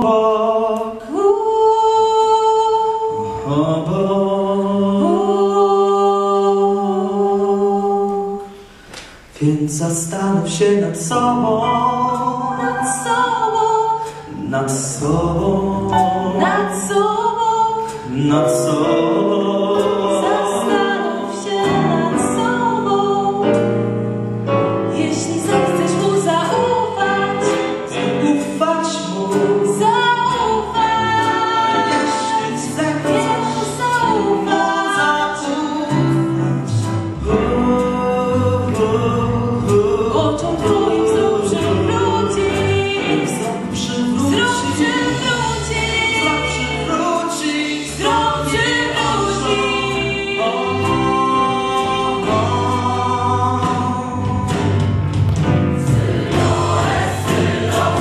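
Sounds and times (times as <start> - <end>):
mixed choir singing: 0.0 - 8.8, 11.3 - 23.8, 24.9 - 54.8, 55.6 - 58.0
man singing lead into microphone: 18.0 - 21.1.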